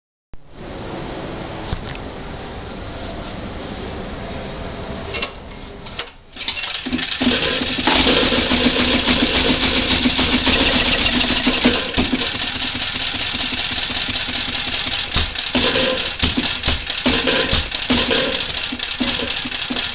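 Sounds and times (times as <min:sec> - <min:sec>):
small generator engine running: 0:06.4 - 0:19.9.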